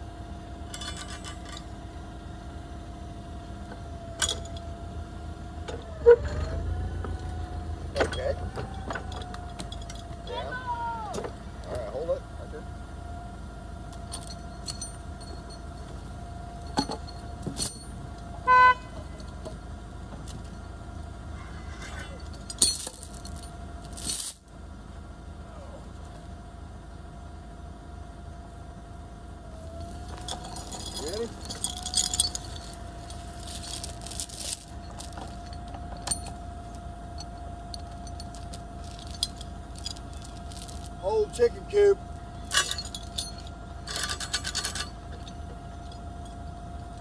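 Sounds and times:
forklift engine idling: 0:00.0 - 0:47.0
sharp metallic clinks: 0:00.7 - 0:01.7, 0:14.0 - 0:15.9, 0:16.5 - 0:18.0, 0:21.8 - 0:24.5, 0:30.1 - 0:36.4, 0:37.2 - 0:46.4
forklift horn toot: 0:18.4 - 0:19.2.

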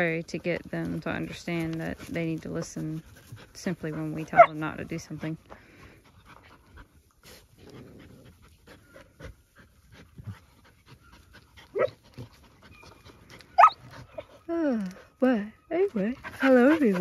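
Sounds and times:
dogs panting: 0:00.0 - 0:17.0
dog yipping: 0:04.3 - 0:04.6, 0:11.0 - 0:12.0, 0:12.6 - 0:14.3.

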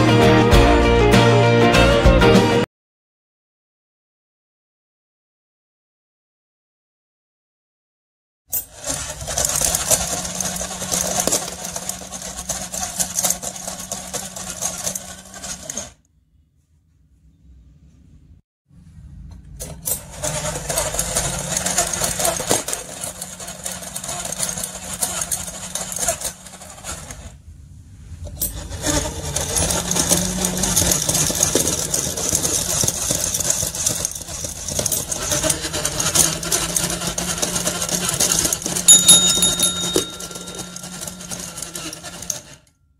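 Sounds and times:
small motor and gears whirring: 0:08.5 - 0:16.0, 0:19.6 - 0:27.4, 0:28.3 - 0:42.8
short high tone: 0:38.9 - 0:41.7.

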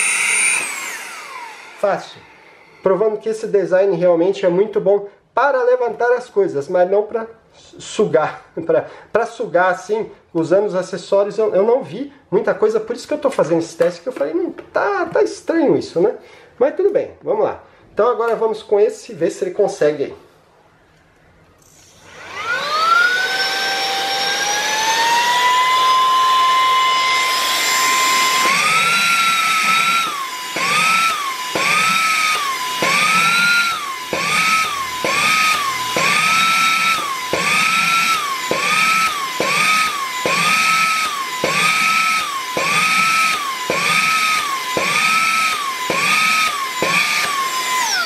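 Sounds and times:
vacuum blower motor whine: 0:00.0 - 0:02.9, 0:21.6 - 0:48.0.

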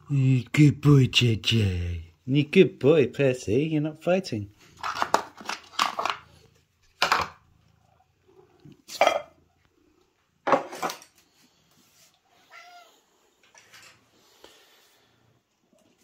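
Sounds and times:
cats meowing: 0:12.3 - 0:13.2.

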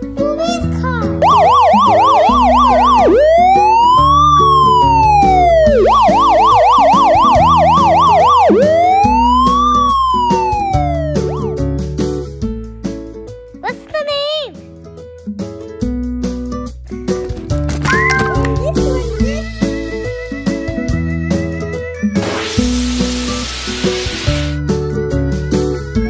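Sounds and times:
background music: 0:00.0 - 0:26.0
electronic police siren: 0:01.2 - 0:11.6.

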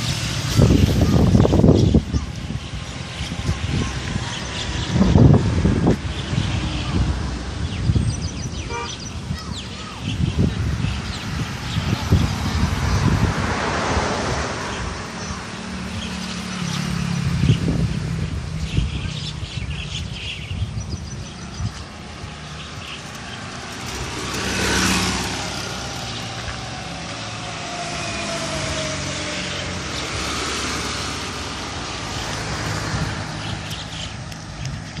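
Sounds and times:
motor vehicle passing: 0:00.0 - 0:35.0.

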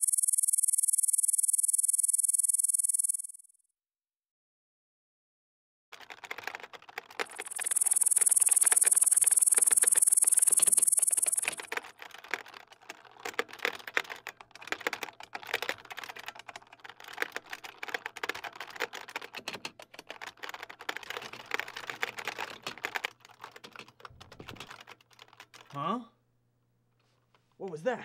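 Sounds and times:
pulsing electronic whine: 0:00.0 - 0:03.4, 0:07.3 - 0:11.7
rapid typing on keyboard: 0:00.0 - 0:03.4, 0:05.9 - 0:25.8.

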